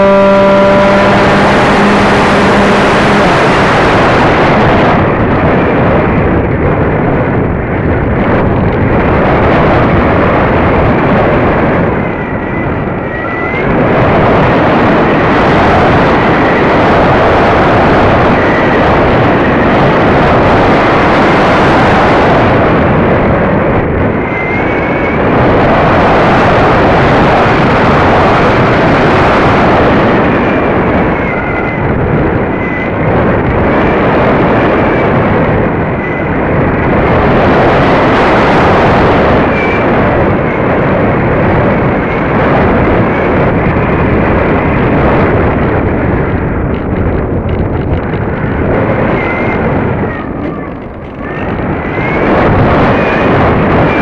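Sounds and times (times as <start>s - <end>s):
electric motor whine: 0.0s - 5.2s
wind buffeting microphone: 0.0s - 54.0s.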